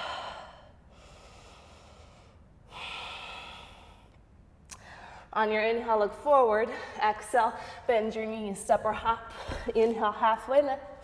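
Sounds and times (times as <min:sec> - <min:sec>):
woman breathing: 0:00.0 - 0:05.4, 0:06.7 - 0:07.9.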